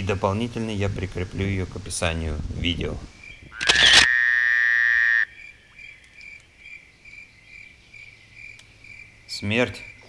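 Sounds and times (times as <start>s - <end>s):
faint insect chirps: 3.0s - 10.0s.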